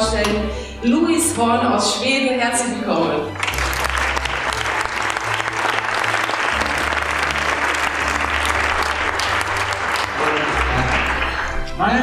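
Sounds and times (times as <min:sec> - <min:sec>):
audience applauding: 0:03.4 - 0:11.8.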